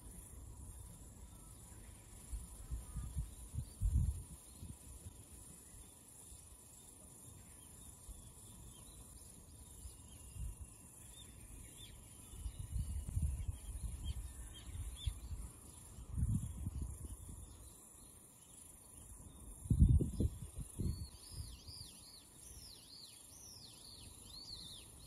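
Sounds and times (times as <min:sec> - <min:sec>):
faint bird chirps: 0:00.0 - 0:25.0
steady high hiss: 0:00.0 - 0:25.0
wind buffeting microphone: 0:02.4 - 0:05.2, 0:12.3 - 0:17.6, 0:19.5 - 0:21.7.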